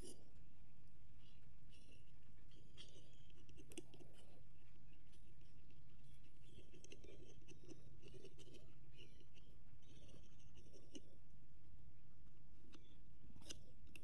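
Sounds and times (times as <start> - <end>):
pencil scratching on wood: 1.2 - 11.2.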